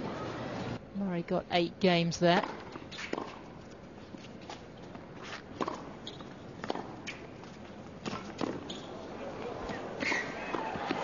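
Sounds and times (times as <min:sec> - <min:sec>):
tennis ball bounces: 0:05.6 - 0:07.3, 0:08.0 - 0:08.8.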